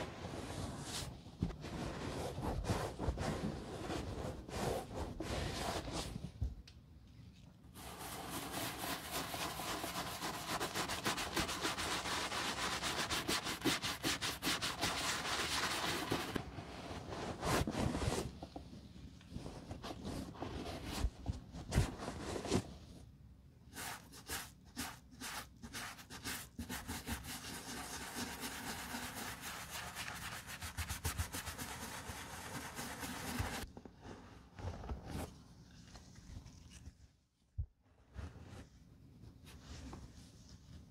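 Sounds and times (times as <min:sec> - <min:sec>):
bristle brush scrubbing leather: 0:23.8 - 0:33.6.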